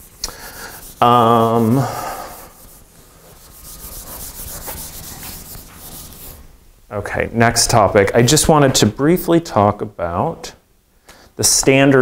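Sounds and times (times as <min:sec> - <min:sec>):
eraser rubbing on whiteboard: 0:00.0 - 0:06.4
man making wordless sound: 0:01.0 - 0:02.2.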